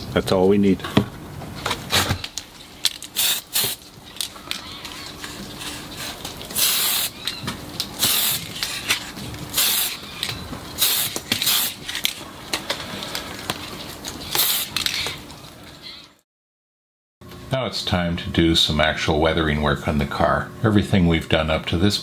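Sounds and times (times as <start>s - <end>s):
spray can hissing: 3.2s - 3.8s, 6.6s - 7.2s, 8.0s - 8.5s, 9.5s - 10.0s, 10.8s - 11.8s, 14.3s - 14.8s.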